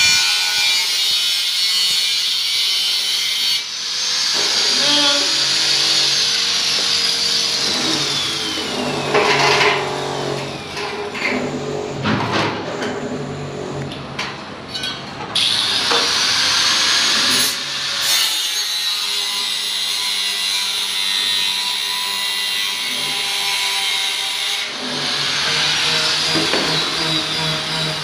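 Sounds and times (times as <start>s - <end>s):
angle grinder cutting steel: 0.0s - 11.1s.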